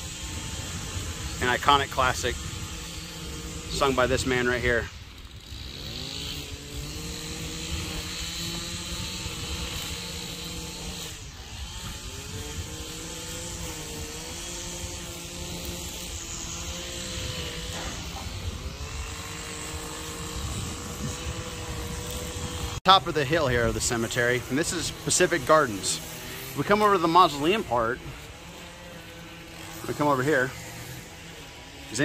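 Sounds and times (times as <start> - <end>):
engine running steadily: 0.0 - 32.0.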